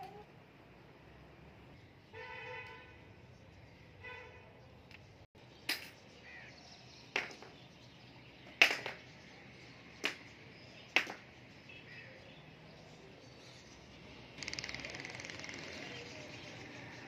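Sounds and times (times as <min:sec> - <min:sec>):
sharp cracks: 0:10.0 - 0:10.2.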